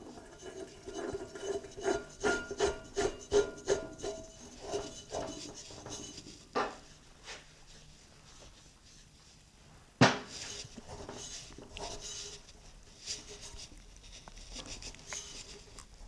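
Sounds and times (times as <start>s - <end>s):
metal scraping and clinking: 0.0s - 6.4s.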